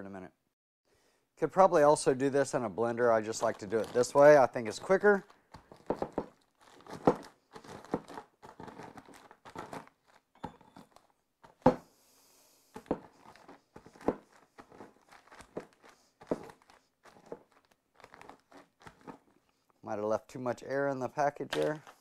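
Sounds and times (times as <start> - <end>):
plastic bag crinkling: 2.9 - 11.6, 12.8 - 19.4
cookies crunching: 3.2 - 11.6, 12.8 - 19.7.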